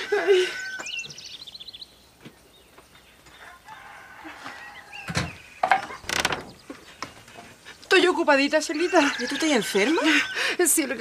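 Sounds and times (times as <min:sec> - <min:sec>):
chickens clucking and squawking: 0:00.0 - 0:01.2, 0:03.3 - 0:11.0.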